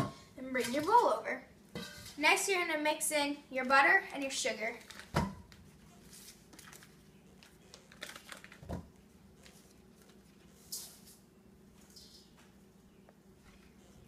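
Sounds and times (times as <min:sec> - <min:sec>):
paper wrapper rustling: 0:04.8 - 0:05.1, 0:06.0 - 0:08.7.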